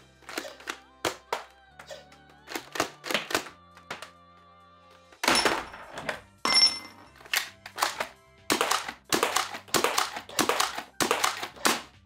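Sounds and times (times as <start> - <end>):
background music: 0.0 - 12.0
foam dart blasters clacking: 7.3 - 12.0.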